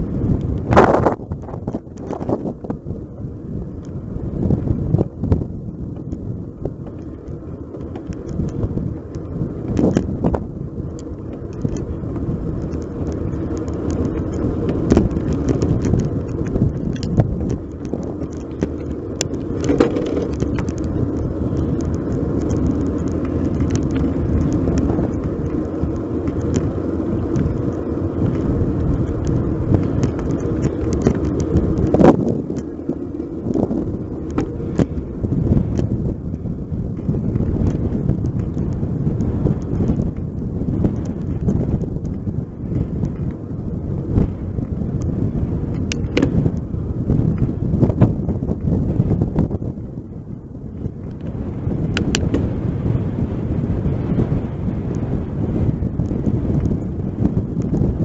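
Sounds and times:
wind and road noise: 0.0s - 58.0s
bicycle rattling clicks: 0.2s - 2.8s, 5.3s - 58.0s.

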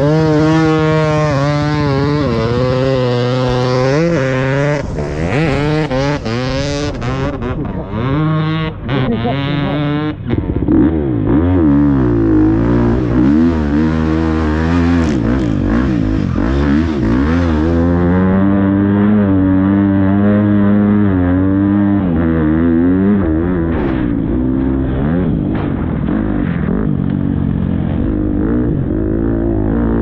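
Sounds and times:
motocross bike engine revving: 0.0s - 30.0s.

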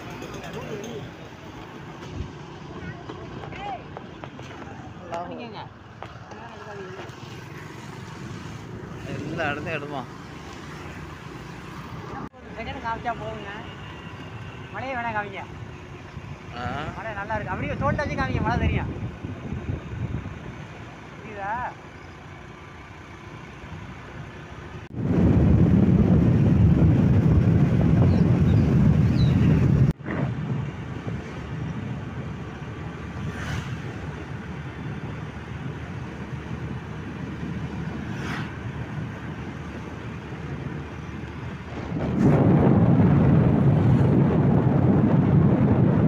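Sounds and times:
wind buffeting microphone: 16.2s - 20.5s, 24.9s - 46.0s.

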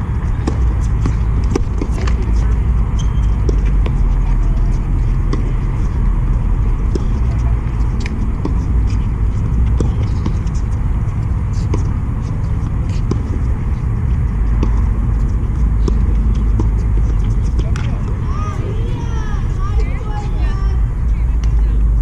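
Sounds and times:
steady low rumble: 0.0s - 22.0s
tennis balls struck with rackets: 0.1s - 20.1s.

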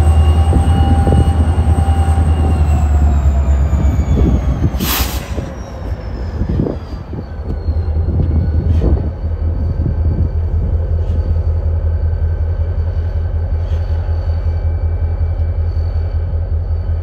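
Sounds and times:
diesel locomotive engine rumble: 0.0s - 17.0s
high wheel squeal: 0.0s - 17.0s
brief hissing burst: 4.8s - 5.4s.

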